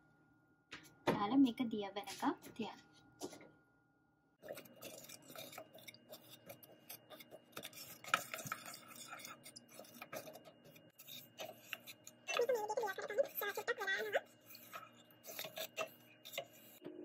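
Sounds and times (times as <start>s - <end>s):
wooden spatula scraping metal pan: 4.4s - 16.8s.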